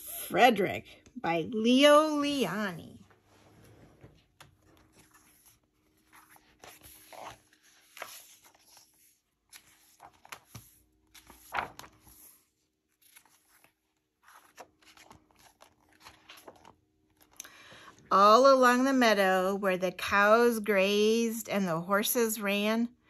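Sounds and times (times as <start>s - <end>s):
paper pages rustling: 3.1s - 17.4s
page sweep: 4.8s - 16.6s.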